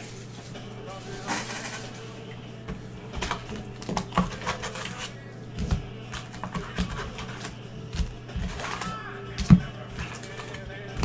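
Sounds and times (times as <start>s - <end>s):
foil packs crinkling: 0.0s - 2.0s, 6.1s - 11.0s
steady low hum: 0.0s - 11.0s.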